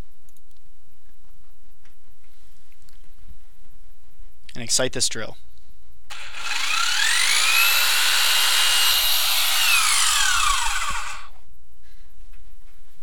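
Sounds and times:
power drill motor whine: 6.1s - 11.3s.

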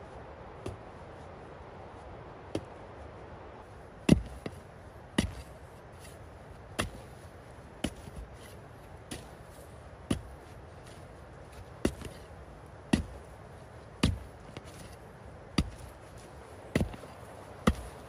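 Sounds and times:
pickaxe striking soil: 6.8s - 7.0s, 15.6s - 15.9s, 16.8s - 18.0s.

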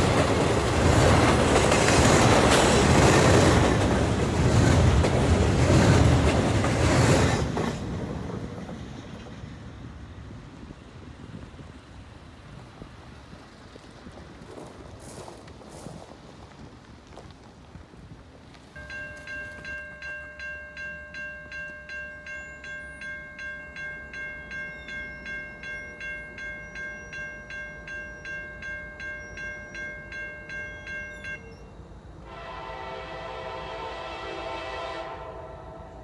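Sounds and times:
crossing bell ringing: 18.7s - 33.3s
locomotive air horn: 32.2s - 36.0s.

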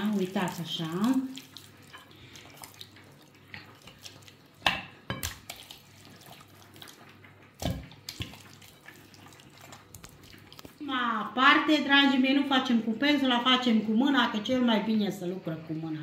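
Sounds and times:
wet squelching of meat: 0.0s - 4.6s, 5.2s - 10.8s
meat slaps: 7.6s - 8.7s.

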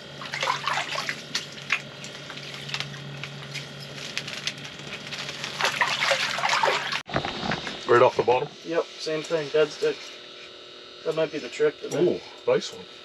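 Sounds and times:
low steady hum: 0.0s - 13.0s
water splashing in hole: 0.2s - 1.9s, 5.5s - 7.1s
clicks and crackles: 1.3s - 5.8s.

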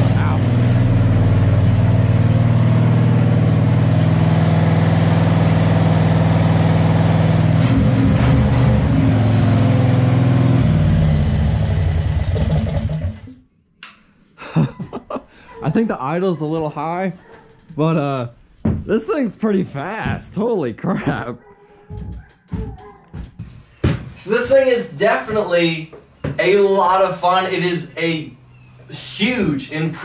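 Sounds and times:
go-kart engine running: 0.0s - 13.3s.

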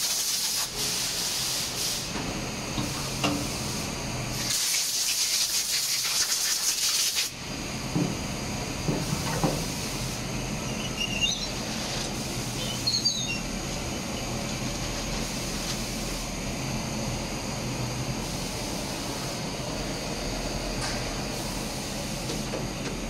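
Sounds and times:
steady machine noise: 7.3s - 23.0s
short squeaks: 10.7s - 11.6s, 12.6s - 13.5s.

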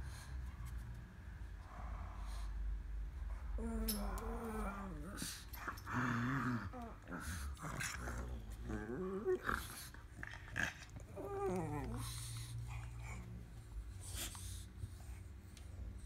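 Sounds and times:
dogs growling and grumbling: 3.2s - 16.0s.

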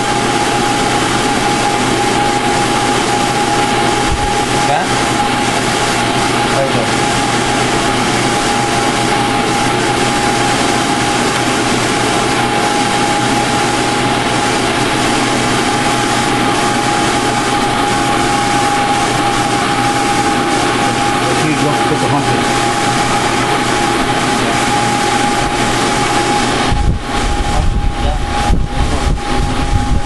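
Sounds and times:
machine drone: 0.0s - 30.0s
steady machine whine: 0.0s - 30.0s.

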